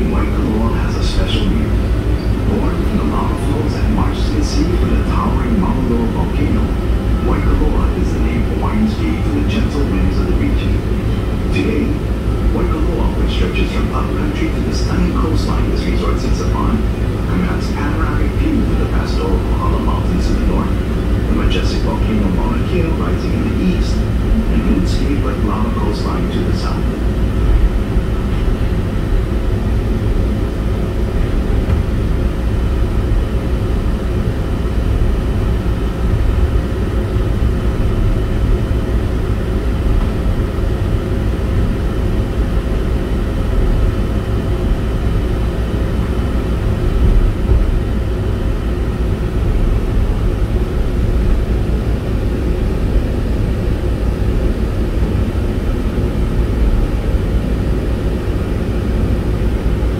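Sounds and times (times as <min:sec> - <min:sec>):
faint steady whine: 0:00.0 - 0:59.9
tram rumbling on track: 0:00.0 - 0:59.9.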